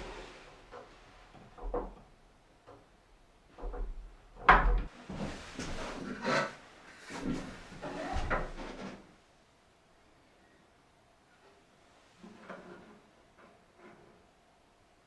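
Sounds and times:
wooden cabinet knocking and scraping: 3.6s - 6.1s, 7.1s - 9.0s.

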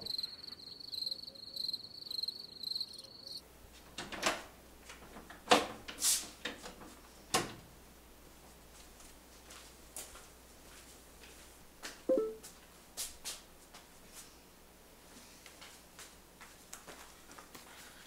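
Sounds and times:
crickets chirping: 0.0s - 3.4s.

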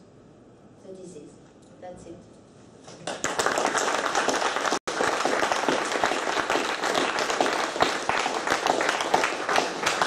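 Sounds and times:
audience applauding: 3.0s - 10.0s.

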